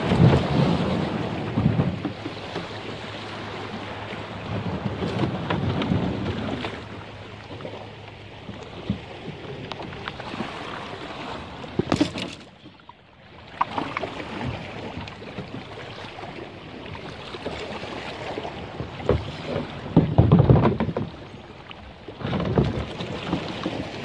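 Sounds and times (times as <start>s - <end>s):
plastic hull scraping on rocks: 4.6s - 6.9s, 11.3s - 12.7s, 18.8s - 21.2s, 22.1s - 24.0s.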